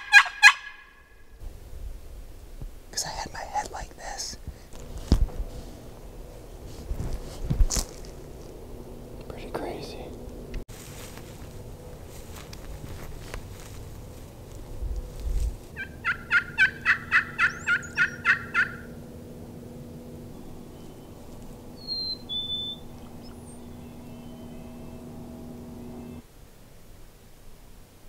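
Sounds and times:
turkey yelps: 0.0 - 1.0, 15.8 - 18.9.

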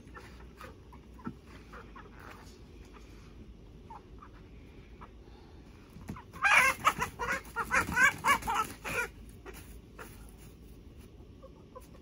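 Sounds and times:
rooster squawking: 6.2 - 10.3.

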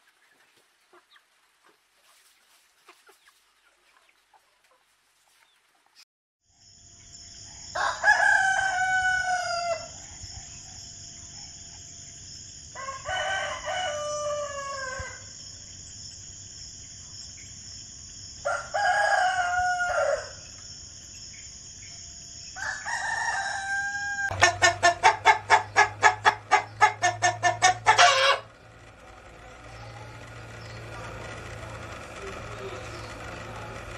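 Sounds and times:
roosters crowing: 7.2 - 16.6, 17.6 - 33.9.

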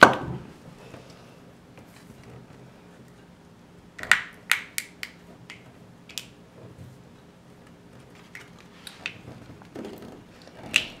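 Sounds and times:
plastic capsule clicks and snaps: 4.0 - 6.3.

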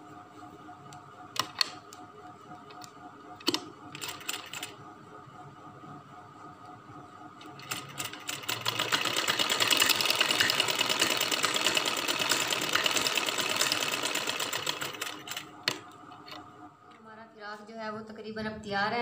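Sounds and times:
sewing machine needle rattling: 7.4 - 15.8.

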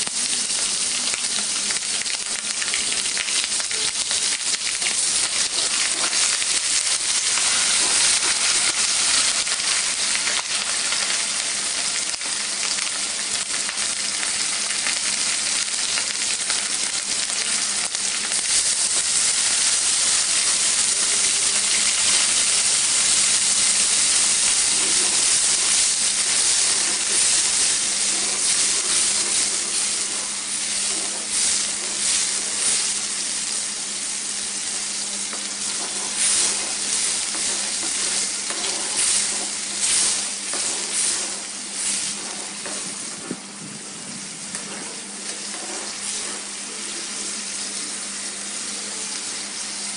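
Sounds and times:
fish and onions sizzling in oil: 0.0 - 49.9
spoon scraping a pan: 4.8 - 9.3, 24.1 - 33.0, 35.3 - 43.4, 44.5 - 46.6.

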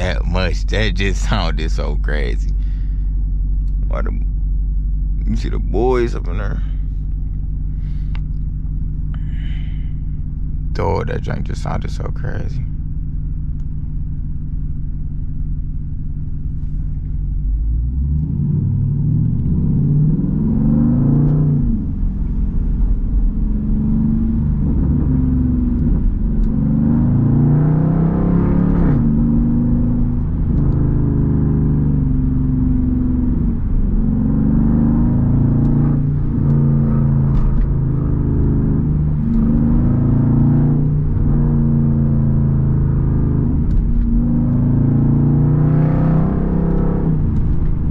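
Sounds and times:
car exhaust rumbling: 0.0 - 47.9
exhaust pops: 35.5 - 41.6, 43.4 - 44.6, 46.7 - 47.9.

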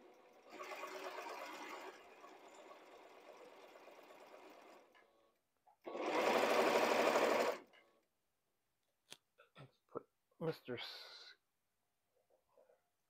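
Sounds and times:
sewing machine stitching: 0.0 - 5.0, 5.8 - 7.8.

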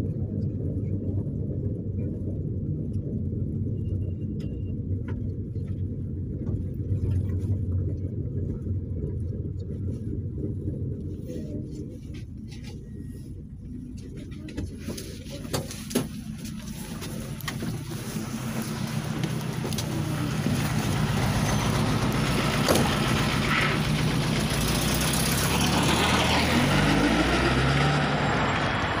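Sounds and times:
street and traffic noise: 11.4 - 29.0
knocks and clicks in minibus: 14.0 - 24.7
vehicle engine revving: 15.6 - 29.0.

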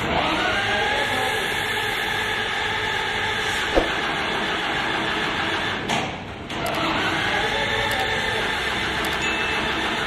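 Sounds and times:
tractor diesel engine running: 6.3 - 10.0.

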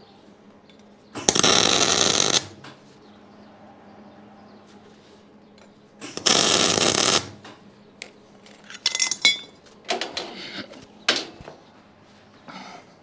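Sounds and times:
welding arc buzzing: 1.2 - 2.6, 6.0 - 7.4.

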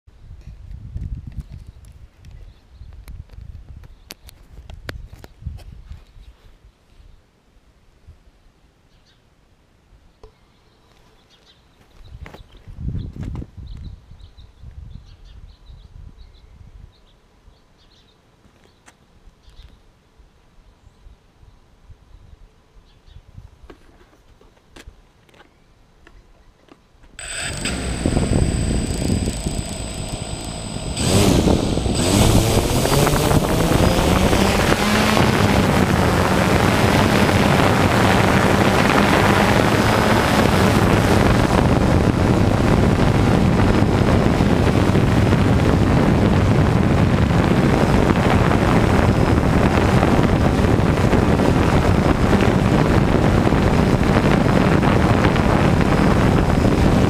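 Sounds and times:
drone motors buzzing: 27.2 - 41.6.

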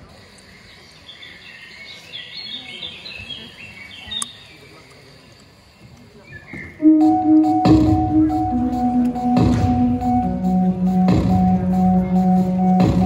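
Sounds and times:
birds chirping: 0.1 - 12.8.

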